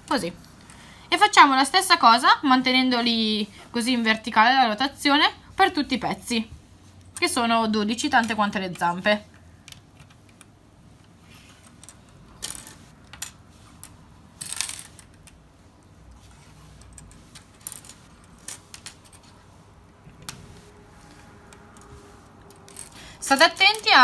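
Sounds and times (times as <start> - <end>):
plastic parts clicking and clattering: 9.6 - 15.5, 16.8 - 19.4.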